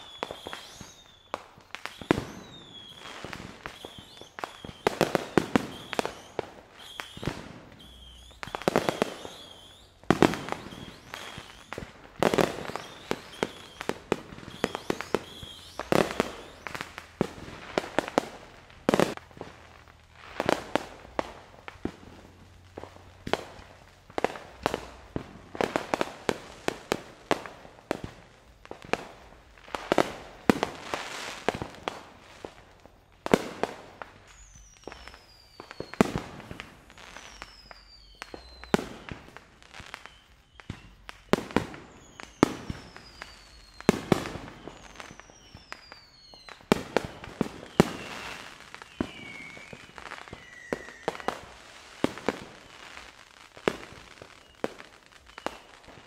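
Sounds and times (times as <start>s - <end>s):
falling firework whistles: 0.0s - 56.0s
fireworks bangs and bursts: 0.0s - 56.0s.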